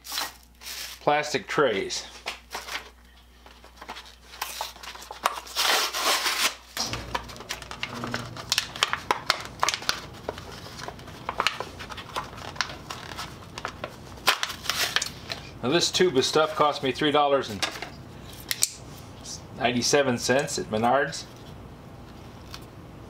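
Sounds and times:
plastic blister pack crinkling: 3.6s - 15.6s.

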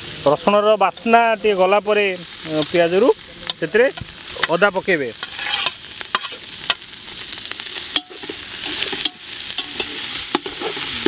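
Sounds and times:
onions sizzling in oil: 0.0s - 11.0s
metal spatula scraping a pot: 5.2s - 6.4s, 7.8s - 11.0s.

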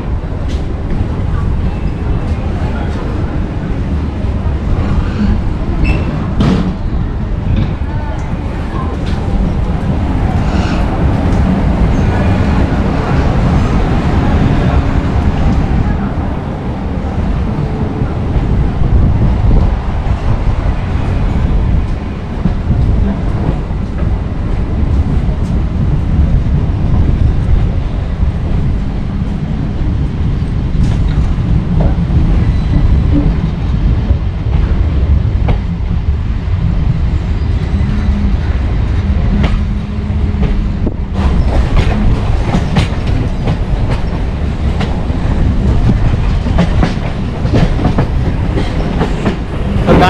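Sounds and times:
train low rumble: 0.0s - 50.0s
wheels clacking over rail joints: 38.0s - 50.0s.

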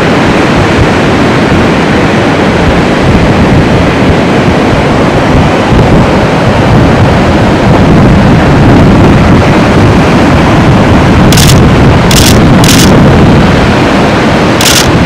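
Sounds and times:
ocean surf breaking: 0.0s - 15.0s
wind rumbling on microphone: 0.0s - 15.0s.

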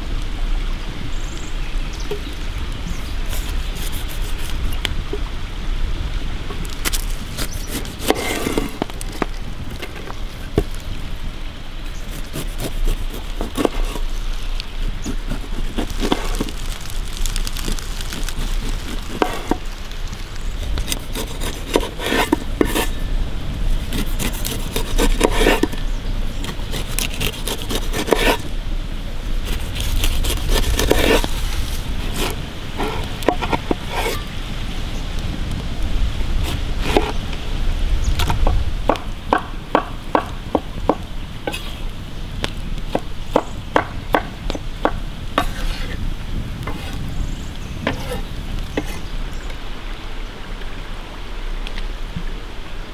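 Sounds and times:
knife scraping pineapple rind: 3.0s - 4.8s, 6.8s - 9.2s, 11.9s - 14.2s, 14.8s - 19.7s, 20.6s - 23.0s, 23.7s - 25.8s, 26.4s - 28.5s, 29.4s - 34.3s, 36.4s - 37.2s, 45.4s - 46.0s, 46.7s - 47.1s, 47.9s - 49.1s.

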